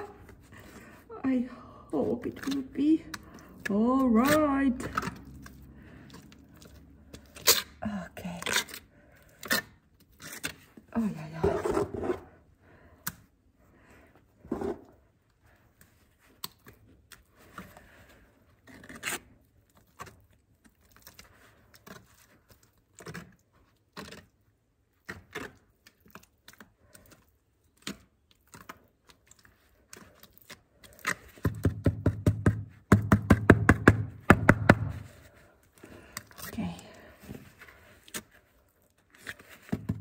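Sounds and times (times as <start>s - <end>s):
trowel scraping mortar paste: 11.2s - 12.4s, 14.4s - 15.0s.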